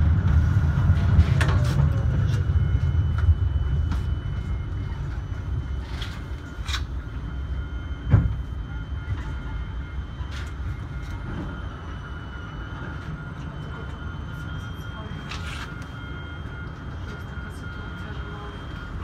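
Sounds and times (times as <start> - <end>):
low rumble: 0.0 - 12.1
high whine of tram equipment: 0.0 - 19.0.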